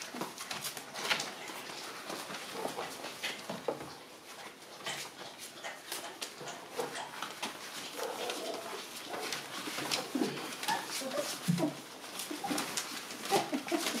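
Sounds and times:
paws scratching on newspaper: 0.0 - 14.0
puppies whimpering and squeaking: 6.4 - 14.0.

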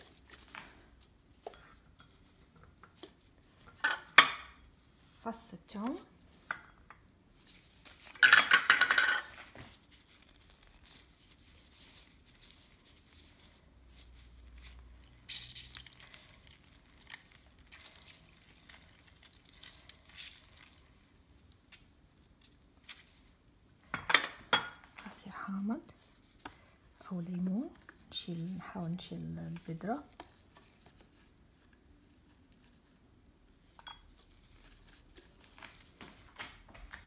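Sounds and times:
faint taps and rustles: 34.2 - 37.0.

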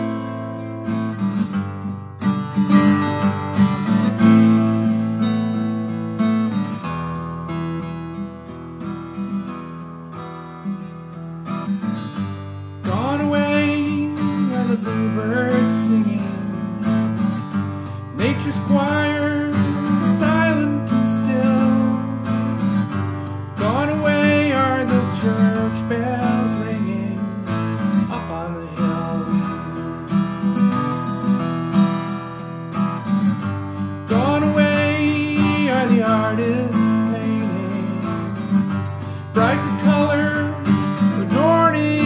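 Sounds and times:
acoustic guitar strumming: 0.0 - 42.0
man singing: 12.8 - 30.1, 34.0 - 42.0.

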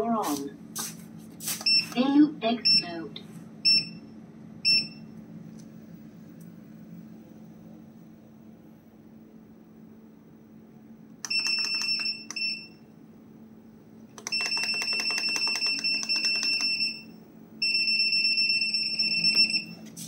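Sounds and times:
steady low hum: 0.0 - 20.0
electronic buzzer beeping: 14.2 - 19.8.

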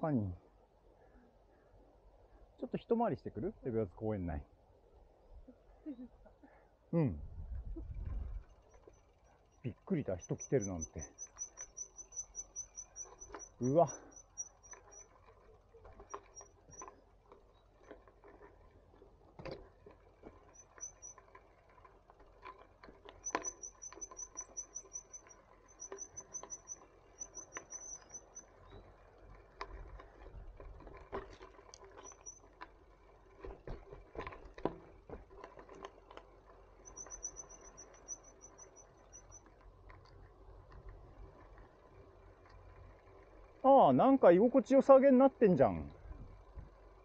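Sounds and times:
bicycle rolling over twigs: 7.9 - 47.0
rapid high-pitched ticking: 8.4 - 17.0, 20.4 - 21.4, 23.2 - 28.9, 31.7 - 32.5, 36.8 - 39.6.

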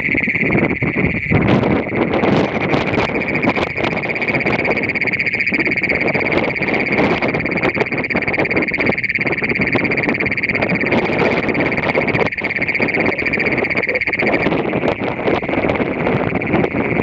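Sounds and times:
toad trilling: 0.0 - 17.0
faint distant trill: 3.0 - 14.8.

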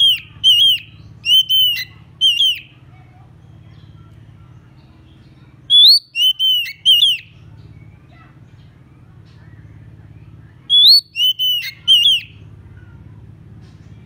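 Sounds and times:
bird whistling notes: 0.0 - 2.8, 5.7 - 7.9, 10.5 - 12.4.

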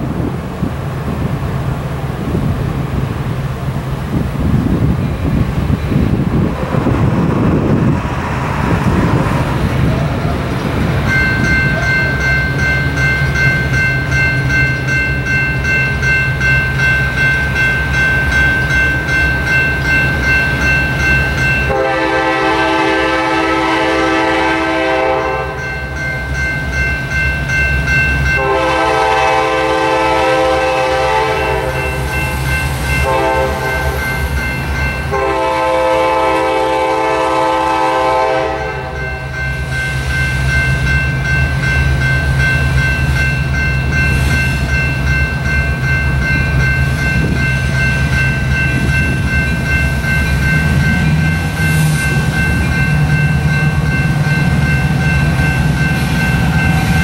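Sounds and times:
electronic crossing bell ringing: 11.0 - 22.6, 24.8 - 29.0, 31.4 - 35.3, 38.6 - 57.0
locomotive horn blasts: 21.7 - 25.6, 28.4 - 32.0, 33.0 - 34.0, 35.1 - 39.2.

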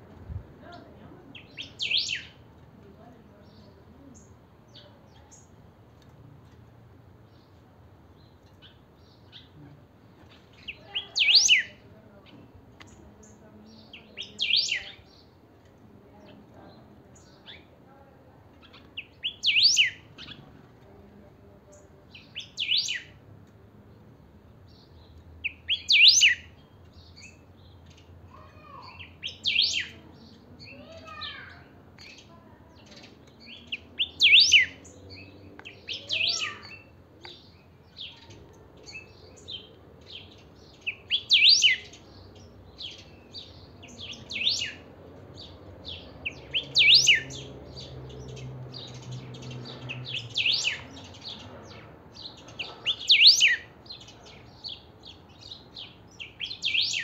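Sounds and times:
bird whistled song phrases: 1.5 - 2.4, 10.7 - 11.7, 19.0 - 20.0, 22.4 - 23.1, 25.5 - 26.5, 28.9 - 30.0, 33.6 - 34.8, 35.8 - 36.8, 40.9 - 42.0, 43.8 - 44.8, 46.3 - 47.5, 50.0 - 50.9, 52.9 - 53.7, 56.2 - 57.0
soft bird chirps: 18.6 - 20.5, 24.6 - 57.0.

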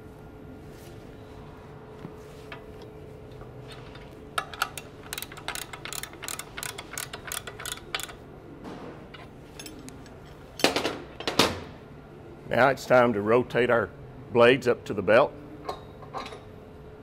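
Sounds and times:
ratchet wrench clicking: 4.4 - 8.2.

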